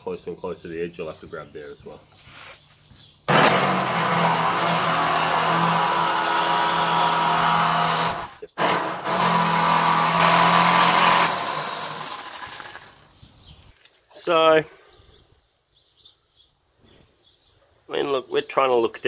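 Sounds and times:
jigsaw cutting wood: 3.3 - 13.0.

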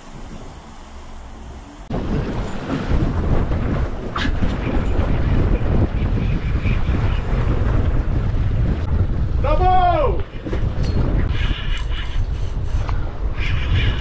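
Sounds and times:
water rushing past boat: 0.0 - 11.7
wind buffeting microphone: 1.8 - 14.0.

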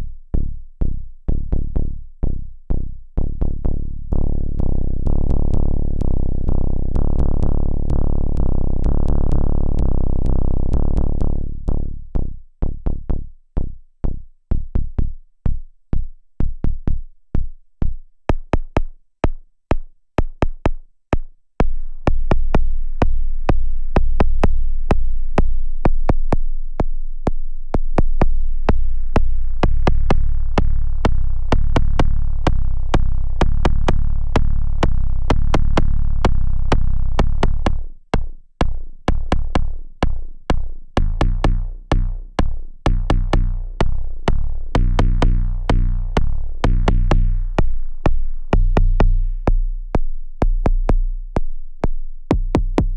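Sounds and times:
synthetic kick drum hits: 0.0 - 52.9
low sub drone: 1.3 - 13.2, 39.1 - 51.5.

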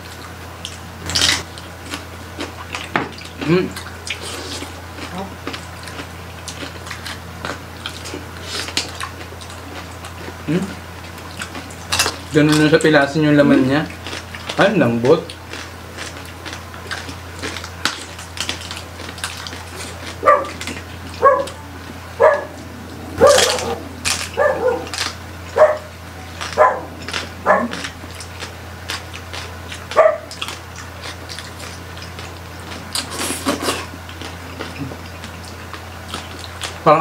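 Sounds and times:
people chewing: 0.0 - 37.0
dog yipping and barking: 20.2 - 20.6, 21.2 - 22.6, 23.2 - 25.9, 26.6 - 27.8, 30.0 - 30.3.

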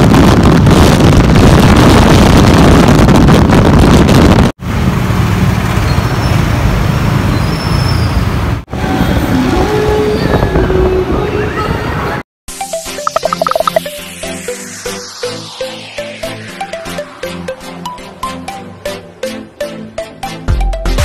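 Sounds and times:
wind rushing over microphone: 0.0 - 4.6
engines and traffic rumble: 0.0 - 12.2.

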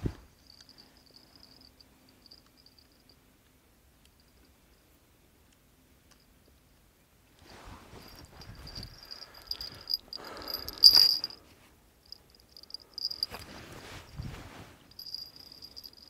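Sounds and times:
clothes and fishing rod rustling: 7.4 - 16.0
high insect trill: 8.1 - 11.4, 12.1 - 13.4, 14.9 - 16.0.

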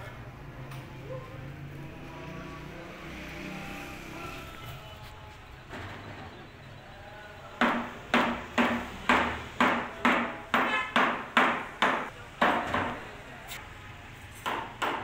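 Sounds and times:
hammer blows ringing: 7.5 - 13.0.

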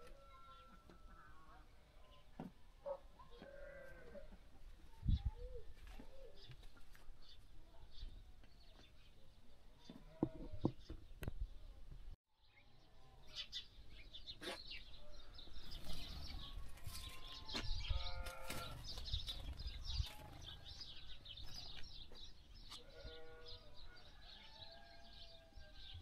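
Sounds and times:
small birds chirping: 0.3 - 26.0
livestock bleating: 3.4 - 4.3, 16.8 - 18.8, 22.7 - 23.8.

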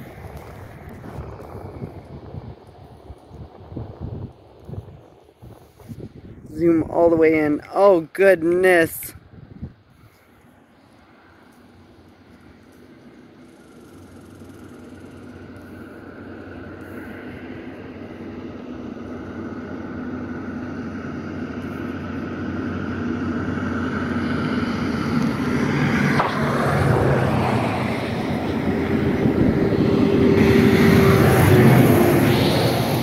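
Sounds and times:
engine humming: 9.2 - 33.0.

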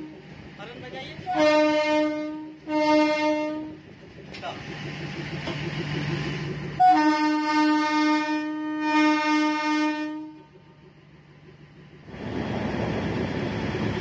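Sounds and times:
train horn blast: 0.0 - 0.2, 1.2 - 3.8, 6.8 - 10.5
low train rumble: 0.0 - 14.0.

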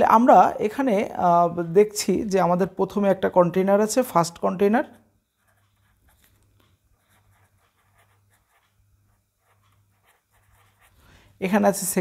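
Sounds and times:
faint low hum: 0.0 - 12.0
pen scratching on paper: 5.4 - 11.0.

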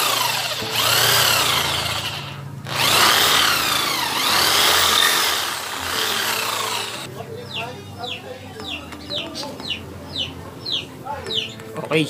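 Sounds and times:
electric drill boring plastic: 0.0 - 7.1.

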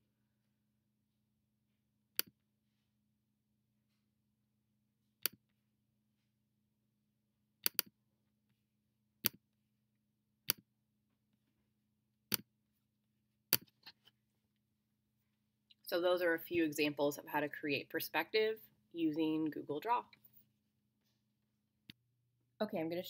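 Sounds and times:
computer mouse button clicking: 7.6 - 7.9.

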